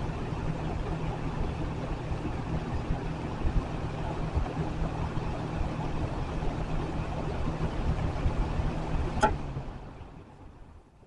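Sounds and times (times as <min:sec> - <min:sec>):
box fan running: 0:00.0 - 0:11.0
fan switch click: 0:09.2 - 0:09.5.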